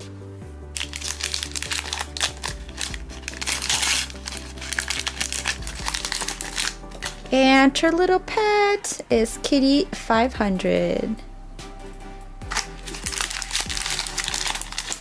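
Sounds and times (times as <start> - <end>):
background music: 0.0 - 15.0
foil bag crinkling: 0.8 - 7.2, 12.5 - 15.0.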